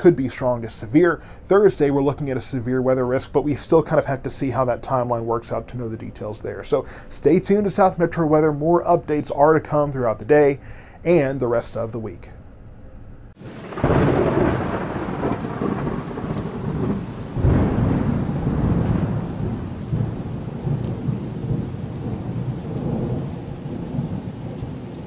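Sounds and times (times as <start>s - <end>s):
rolling thunder: 13.4s - 25.0s
steady rain: 13.4s - 25.0s.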